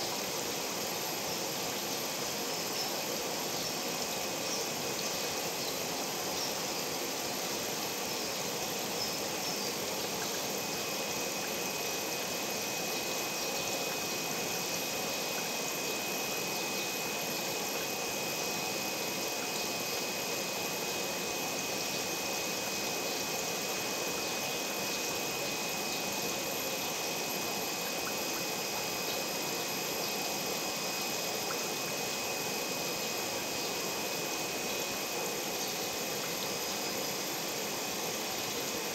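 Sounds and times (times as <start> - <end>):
faint high whine: 0.0 - 38.9.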